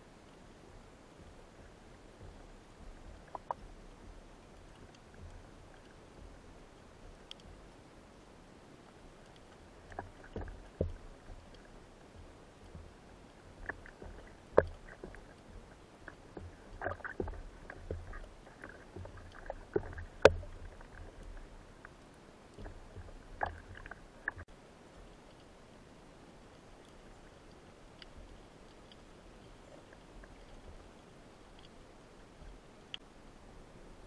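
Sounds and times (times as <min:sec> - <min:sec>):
faint underwater rumble: 0:00.0 - 0:34.0
underwater knocks and clicks: 0:00.7 - 0:07.8, 0:09.2 - 0:24.5, 0:26.8 - 0:33.0.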